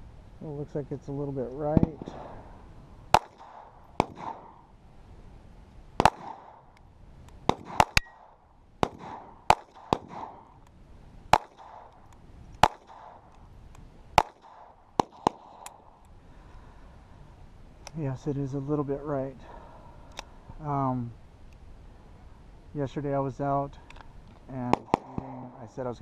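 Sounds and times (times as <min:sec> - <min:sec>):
pistol shots cracking: 0:03.1 - 0:04.7, 0:06.0 - 0:06.7, 0:07.4 - 0:10.6, 0:11.3 - 0:13.3, 0:14.2 - 0:15.9, 0:24.7 - 0:25.6.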